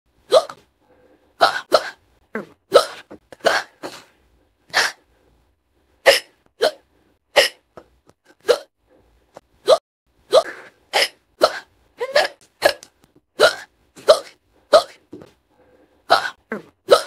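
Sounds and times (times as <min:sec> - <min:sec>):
woman hiccuping: 0:08.3 - 0:08.7, 0:09.6 - 0:15.0, 0:16.1 - 0:17.0.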